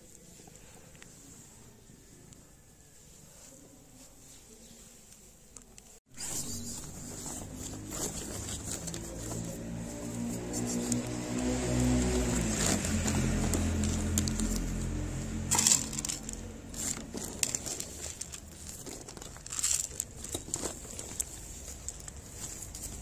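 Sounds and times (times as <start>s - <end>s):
plastic bag crinkling: 6.3s - 23.0s.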